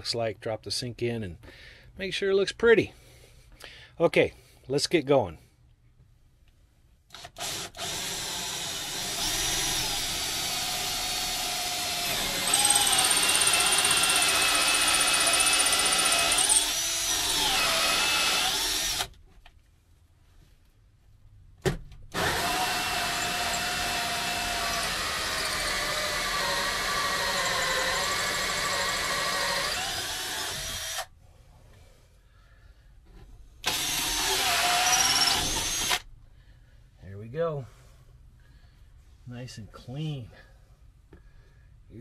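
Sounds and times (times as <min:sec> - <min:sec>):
drill whining with hole saw: 0:07.2 - 0:19.1, 0:22.1 - 0:31.1, 0:33.6 - 0:36.0.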